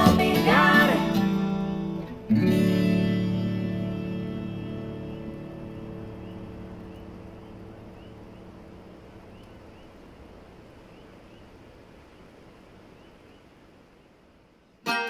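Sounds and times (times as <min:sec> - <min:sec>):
music: 0:00.0 - 0:07.8
night ambience: 0:00.0 - 0:14.9
faint rising chirps: 0:03.8 - 0:14.2.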